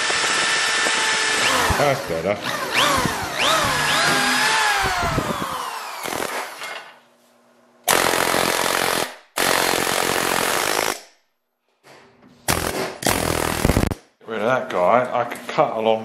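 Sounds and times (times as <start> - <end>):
cordless drill motor whining: 0.0 - 6.3
pneumatic tool cutting metal: 0.0 - 6.8, 12.5 - 14.0.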